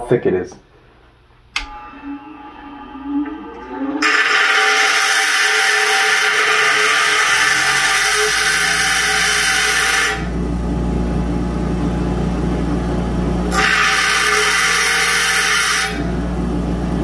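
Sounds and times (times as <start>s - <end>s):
grinder motor hum: 1.6s - 17.0s
knife blade grinding on wheel: 4.0s - 10.3s.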